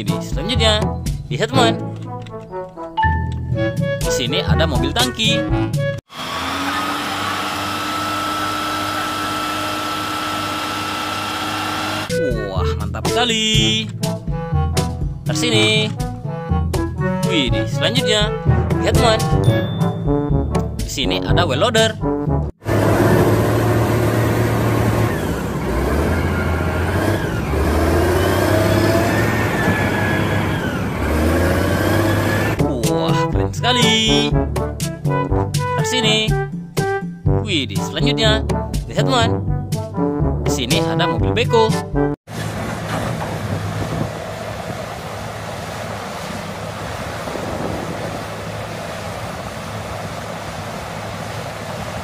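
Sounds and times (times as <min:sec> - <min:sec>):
wheel loader diesel engine: 0:05.8 - 0:12.9, 0:22.6 - 0:32.7, 0:42.3 - 0:52.0
machine whine: 0:06.1 - 0:12.2, 0:22.6 - 0:32.6
wind noise on microphone: 0:43.2 - 0:44.9, 0:46.8 - 0:49.4.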